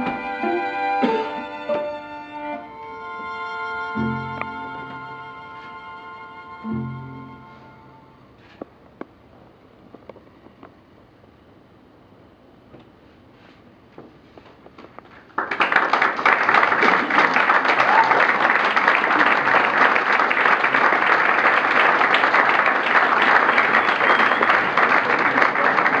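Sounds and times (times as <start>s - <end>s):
audience applause: 15.1s - 26.0s.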